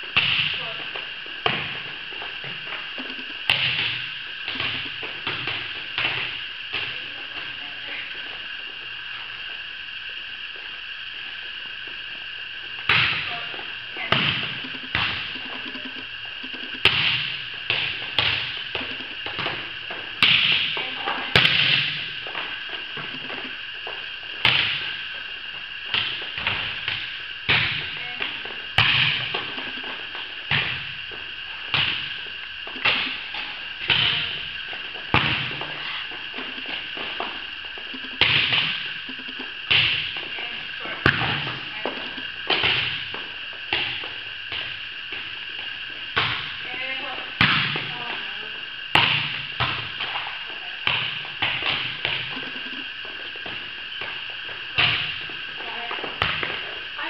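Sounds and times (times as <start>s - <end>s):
steady high hum: 0.0s - 57.0s
volleyball hits echoing: 12.9s - 15.9s, 28.8s - 29.6s, 38.2s - 39.0s, 41.0s - 44.7s, 46.1s - 46.6s, 47.4s - 48.0s, 48.9s - 52.4s, 54.8s - 55.3s.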